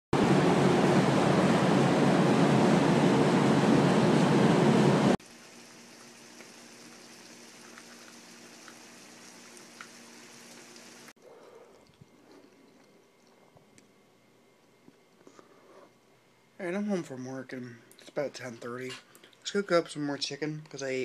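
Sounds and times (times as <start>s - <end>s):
chicken sizzling in a skillet: 5.2s - 11.1s.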